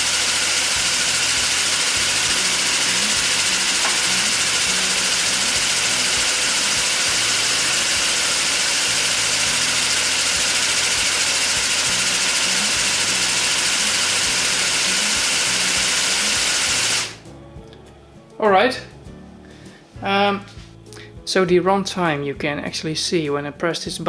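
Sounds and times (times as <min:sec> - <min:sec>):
small air compressor running: 0:00.0 - 0:17.2.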